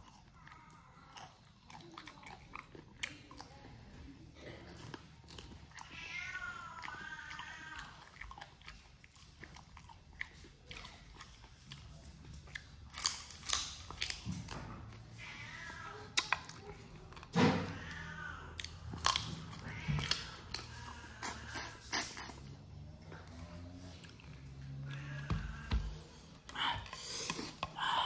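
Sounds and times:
man chewing and smacking: 0.0s - 4.0s, 6.7s - 15.1s, 18.6s - 22.4s, 23.0s - 27.8s.

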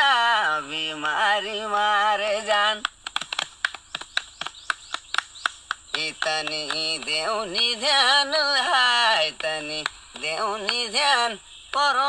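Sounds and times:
percussion beats: 2.8s - 7.9s.

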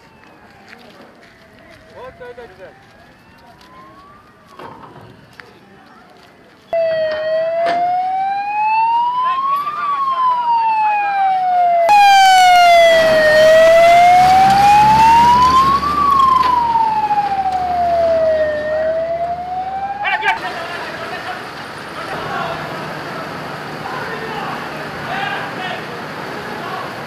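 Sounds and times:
fire engine siren wailing: 0.0s - 5.3s, 6.8s - 21.4s
truck engine and road rumble: 0.0s - 27.0s.

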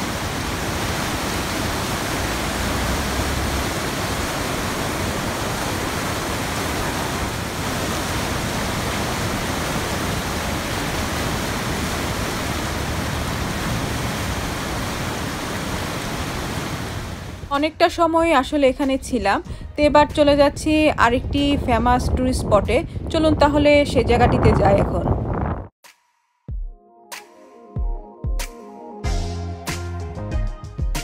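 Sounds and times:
river rapids rushing: 0.0s - 17.5s.

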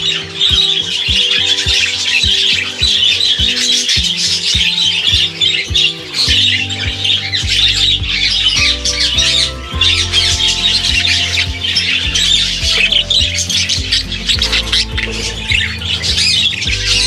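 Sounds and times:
low sustained background music: 0.0s - 17.0s.

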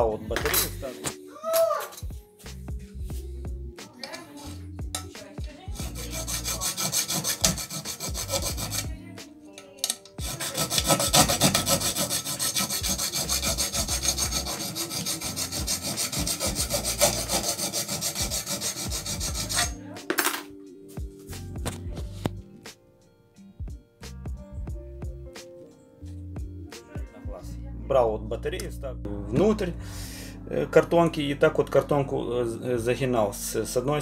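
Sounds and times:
hacksaw cutting metal: 5.8s - 8.9s, 9.8s - 19.8s.

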